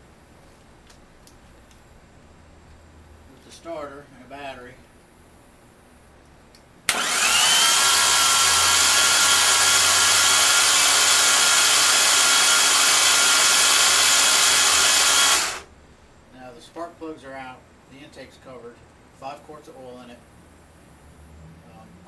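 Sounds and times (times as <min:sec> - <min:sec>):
rising whine: 0:06.9 - 0:15.7
starter motor cranking engine: 0:06.9 - 0:15.7.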